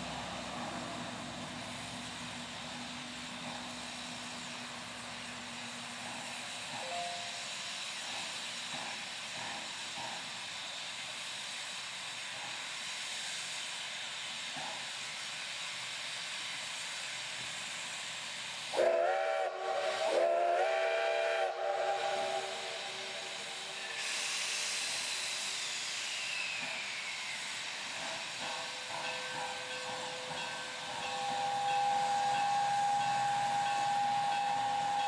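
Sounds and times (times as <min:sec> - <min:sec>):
steam locomotive hissing: 0:00.0 - 0:35.0
steam whistle blasts: 0:18.7 - 0:24.9, 0:28.9 - 0:35.0.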